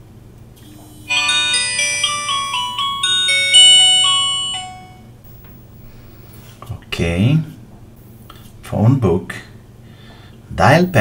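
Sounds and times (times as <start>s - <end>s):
bright bell-like chiming melody: 1.1s - 5.1s.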